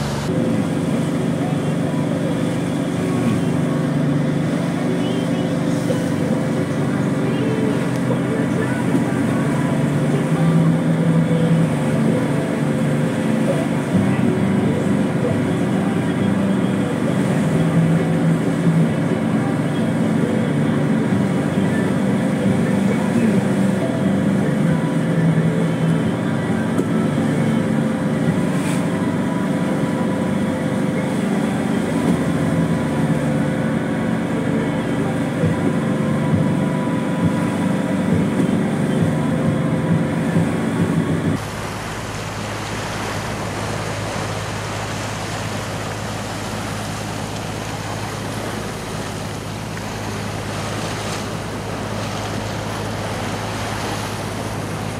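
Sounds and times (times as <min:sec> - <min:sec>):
boat engine running: 0:00.0 - 0:54.9
water rushing from wake: 0:00.0 - 0:54.9.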